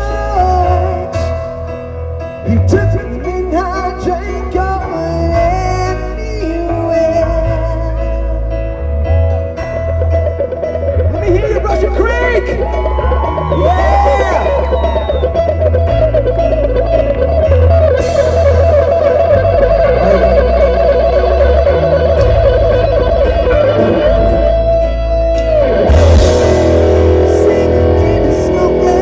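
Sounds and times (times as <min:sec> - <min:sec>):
bass and drums: 0:00.0 - 0:29.0
electric guitar solo: 0:09.9 - 0:29.0.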